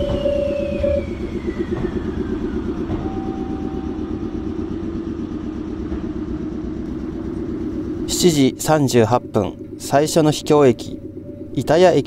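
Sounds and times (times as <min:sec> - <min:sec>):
electric train rumbling hum: 0:00.0 - 0:12.0
train whine falling in pitch: 0:00.0 - 0:12.0.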